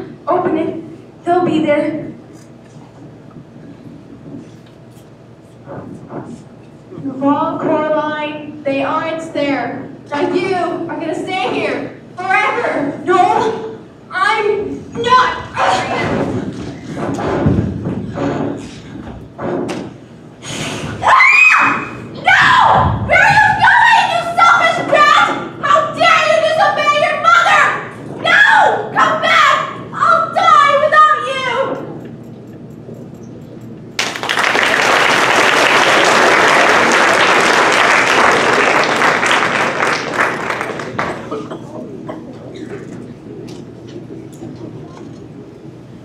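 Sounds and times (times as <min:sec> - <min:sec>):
audience applauding: 0:34.0 - 0:41.5.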